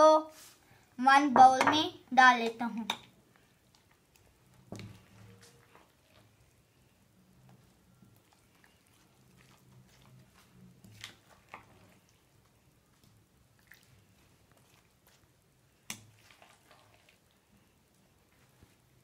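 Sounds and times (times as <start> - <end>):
creamy salad squishing: 3.2 - 19.0.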